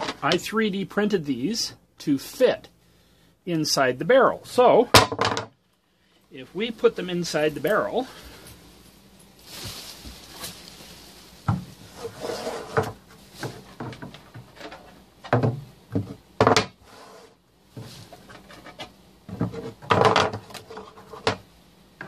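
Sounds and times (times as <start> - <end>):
plastic pieces knocking in cardboard barrel: 4.9 - 5.5, 9.5 - 11.9, 12.7 - 16.8, 17.8 - 21.5.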